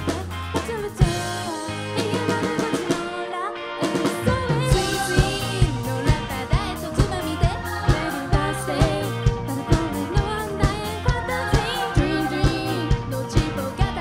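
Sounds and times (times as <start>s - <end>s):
live pop band: 0.0s - 14.0s
person singing lead vocal: 0.0s - 14.0s
drum beat: 4.0s - 14.0s.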